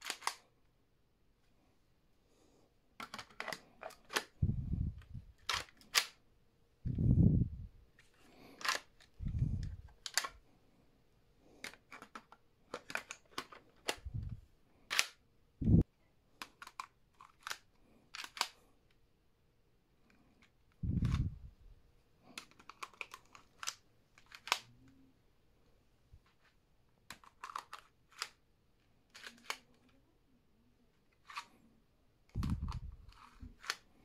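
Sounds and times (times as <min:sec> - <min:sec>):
plastic bricks clicking: 0:00.0 - 0:00.4, 0:03.0 - 0:04.4, 0:08.4 - 0:10.4, 0:11.6 - 0:14.3, 0:16.4 - 0:18.6, 0:22.3 - 0:25.0, 0:27.1 - 0:28.4, 0:29.1 - 0:30.0
wind buffeting microphone: 0:04.4 - 0:05.3, 0:06.9 - 0:07.7, 0:09.2 - 0:09.8, 0:20.8 - 0:21.5.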